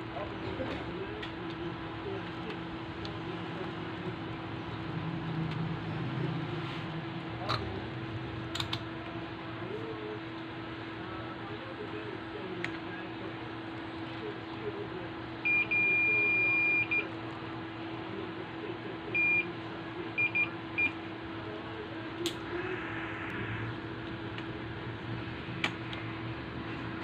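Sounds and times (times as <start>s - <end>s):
steady low hum: 0.0s - 27.0s
multimeter beeps: 15.4s - 17.1s, 19.1s - 19.5s, 20.2s - 21.0s.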